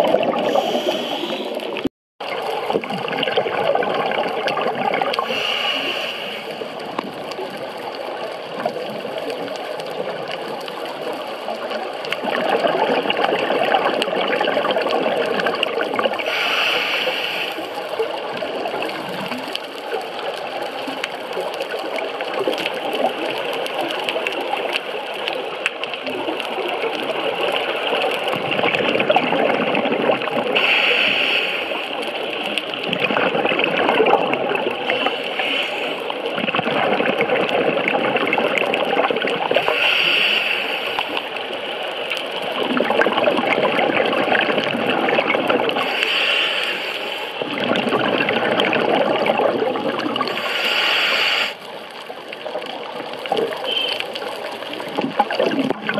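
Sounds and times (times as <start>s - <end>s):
bubbling exhaust underwater: 0.0s - 55.9s
regulator inhalation hiss: 0.5s - 1.6s, 5.3s - 6.6s, 16.2s - 17.7s, 30.6s - 31.8s, 35.0s - 36.0s, 39.6s - 41.2s, 45.8s - 47.4s, 50.4s - 51.6s.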